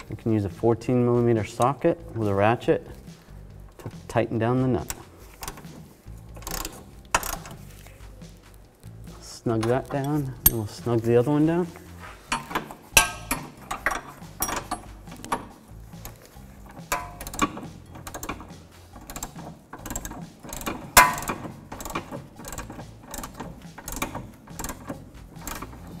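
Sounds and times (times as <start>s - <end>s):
hand ratchet clicking: 1.2s - 26.0s
loud metallic clank: 12.4s - 14.9s.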